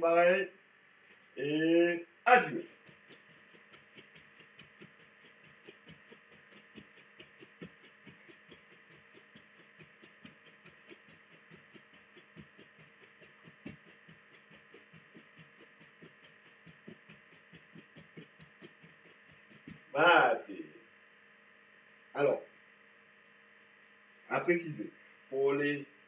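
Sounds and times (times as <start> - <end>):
feet thumping on floor: 2.8 - 19.9.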